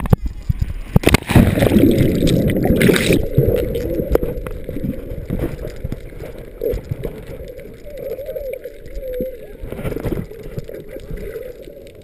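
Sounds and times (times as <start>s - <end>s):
underwater bubbling and rushing water: 0.0s - 12.0s.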